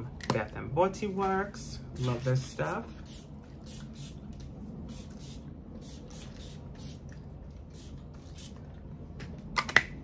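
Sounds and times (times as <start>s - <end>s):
spray bottle hissing: 2.0s - 4.2s, 4.8s - 7.1s, 7.7s - 8.6s.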